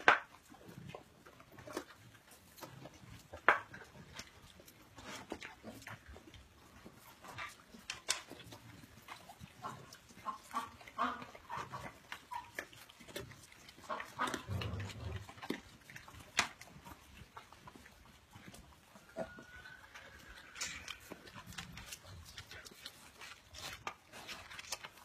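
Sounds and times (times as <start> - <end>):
animals chewing vegetables: 0.0 - 25.0
pig grunting: 8.5 - 16.9.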